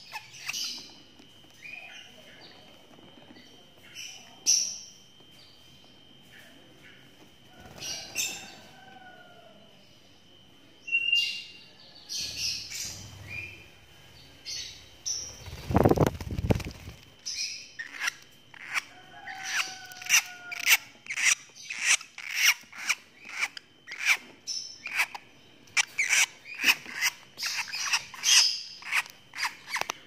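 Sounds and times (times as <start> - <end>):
bird chirping: 0.0 - 8.8, 9.7 - 30.0
wings flapping: 15.3 - 17.1.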